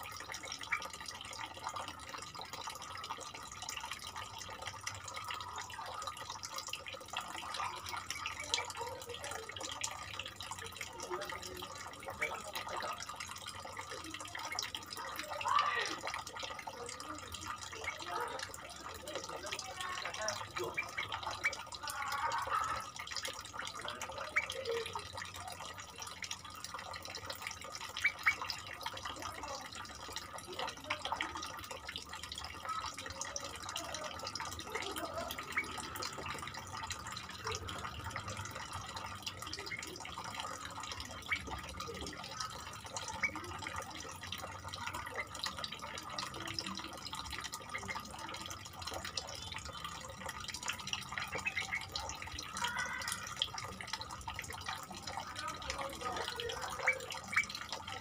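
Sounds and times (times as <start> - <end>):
faint bird chirps and ticks: 0.0 - 58.0
bulbuls calling: 17.5 - 24.7, 27.9 - 28.6, 56.0 - 57.7.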